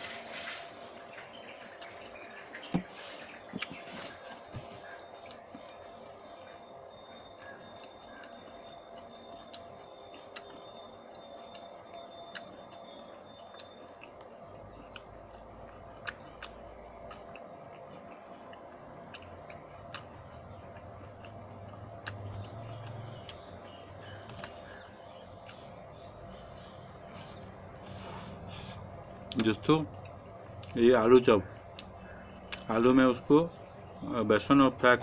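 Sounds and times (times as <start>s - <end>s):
man chewing crunchy snacks: 3.6s - 25.7s
faint steady tone: 4.0s - 35.0s.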